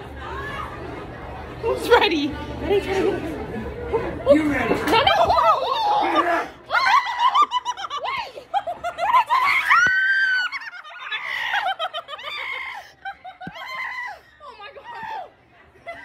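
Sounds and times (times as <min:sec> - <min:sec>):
young people laughing and shrieking: 0:04.9 - 0:16.0.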